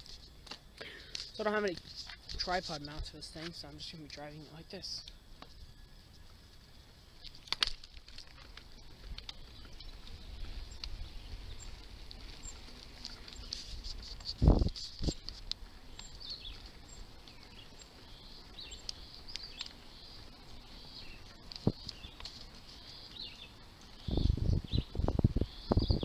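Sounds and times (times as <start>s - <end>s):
bicycle rumble: 0.0s - 26.0s
birds chirping: 8.4s - 26.0s
wind buffeting on microphone: 13.5s - 15.4s, 24.0s - 26.0s.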